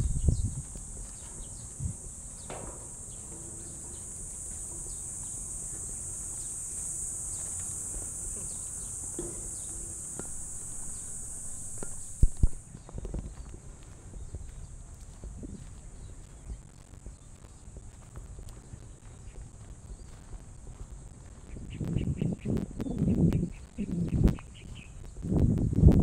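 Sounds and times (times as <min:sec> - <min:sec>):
high-pitched insect chorus: 0:00.0 - 0:25.2
faint footsteps: 0:00.0 - 0:26.0
sharp knocks: 0:00.9 - 0:12.6.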